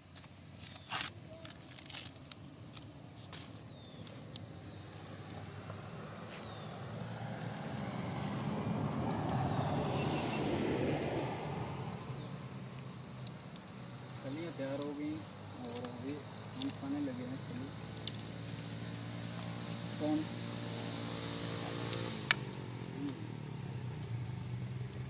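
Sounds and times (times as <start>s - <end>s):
corn husks tearing: 0.6s - 4.4s
vehicle passing: 3.7s - 25.0s.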